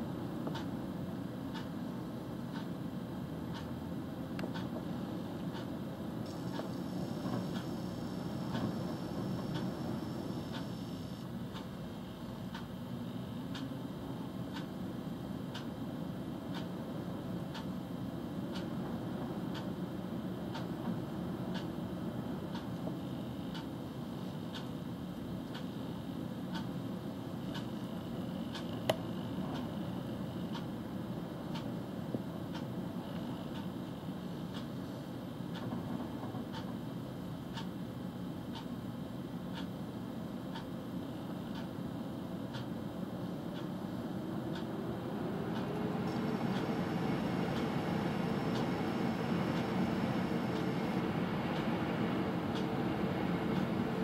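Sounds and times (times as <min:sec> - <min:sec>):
low engine rumble: 0:43.3 - 0:54.0.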